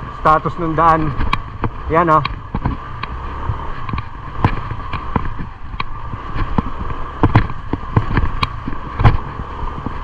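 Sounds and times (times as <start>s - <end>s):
scooter engine low rumble: 0.0s - 10.0s
scooter knocking and rattling: 0.7s - 10.0s.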